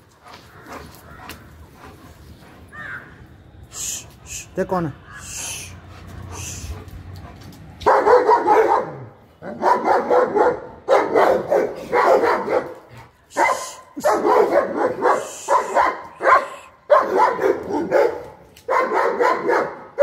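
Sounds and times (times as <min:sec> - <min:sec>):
large dog barking: 0:05.4 - 0:20.0.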